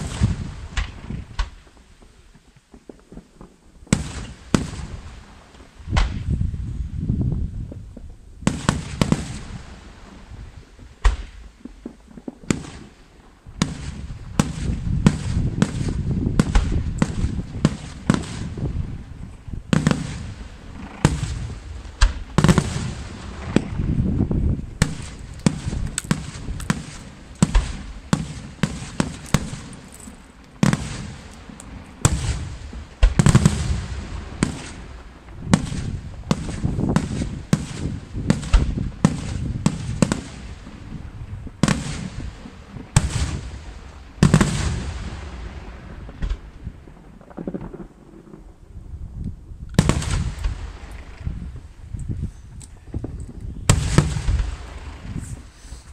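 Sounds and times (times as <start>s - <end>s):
fireworks bangs with echoes: 0.0s - 6.4s, 7.9s - 48.7s, 49.8s - 51.9s, 53.0s - 55.5s.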